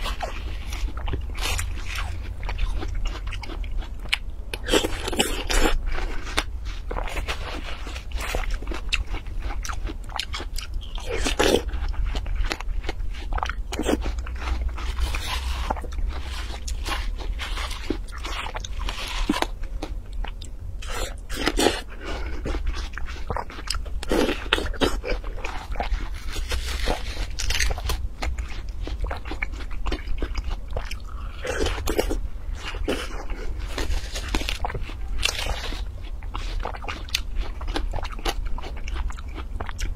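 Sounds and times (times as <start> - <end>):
chewing crisp watermelon: 0.0 - 39.9
metal spoon scraping melon: 14.5 - 19.5.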